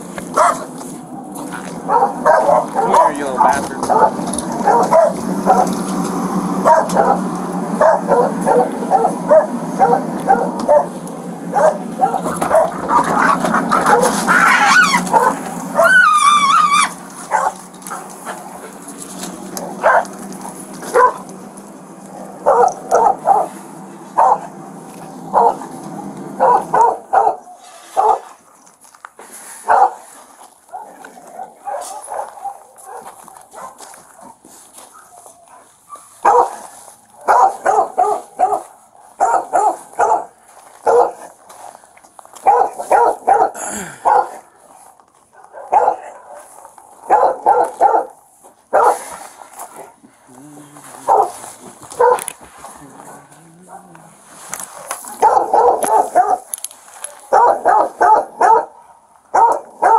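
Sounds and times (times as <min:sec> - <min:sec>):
low hum: 0:00.0 - 0:27.5
dogs barking and yipping: 0:00.0 - 0:28.8, 0:29.6 - 0:50.0, 0:51.0 - 0:59.9
dog yelping: 0:00.4 - 0:00.7, 0:01.8 - 0:05.8, 0:06.6 - 0:18.8, 0:19.6 - 0:20.2, 0:20.9 - 0:21.2, 0:22.4 - 0:23.6, 0:24.2 - 0:24.6, 0:25.3 - 0:25.7, 0:26.4 - 0:28.2, 0:35.0 - 0:36.6, 0:37.2 - 0:41.3, 0:42.4 - 0:44.4, 0:45.6 - 0:46.4, 0:47.1 - 0:48.1, 0:52.0 - 0:52.3, 0:55.2 - 0:56.5, 0:57.3 - 0:59.9.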